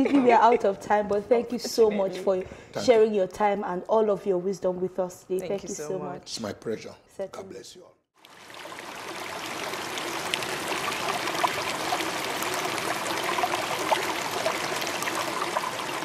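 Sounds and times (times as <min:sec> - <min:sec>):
stream running water: 0:08.2 - 0:16.0.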